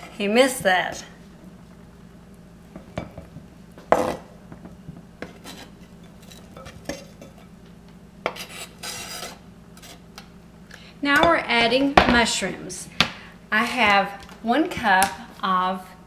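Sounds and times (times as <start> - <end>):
knife scraping cutting board: 5.2 - 7.4, 8.2 - 10.0.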